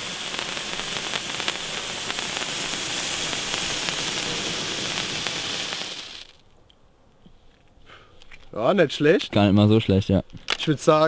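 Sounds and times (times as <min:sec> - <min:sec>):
firework fountain hissing and crackling: 0:00.0 - 0:06.4.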